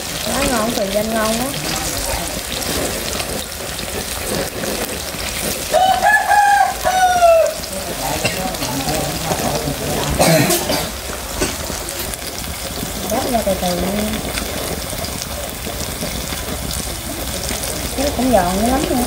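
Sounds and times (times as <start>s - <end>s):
food sizzling in hot oil: 0.0s - 19.0s
rooster crowing: 5.6s - 8.0s.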